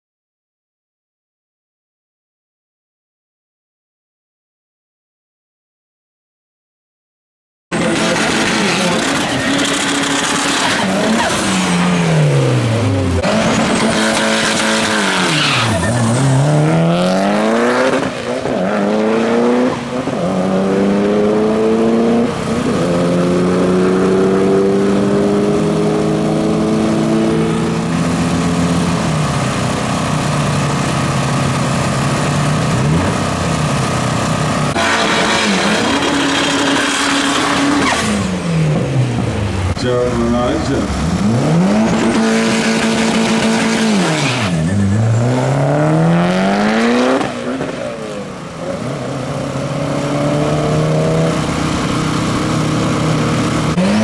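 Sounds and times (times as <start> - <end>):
car engine revving: 7.7 - 54.0
tyres spinning in a burnout: 7.8 - 12.4, 13.1 - 18.7.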